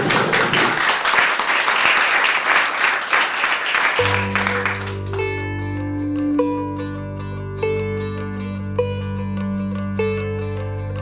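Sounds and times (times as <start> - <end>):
people clapping: 0.0 - 5.4
plucked string notes: 4.0 - 11.0.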